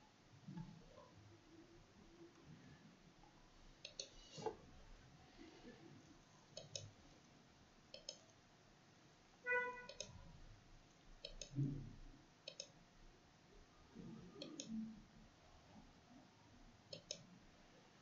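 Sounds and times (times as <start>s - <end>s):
mouse button clicking: 16.9s - 17.2s.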